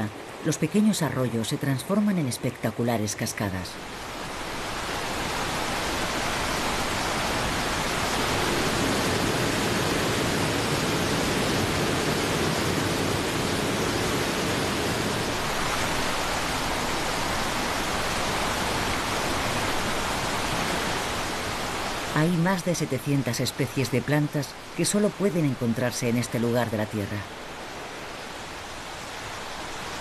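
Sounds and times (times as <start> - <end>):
waterfall rushing into river: 3.6 - 30.0.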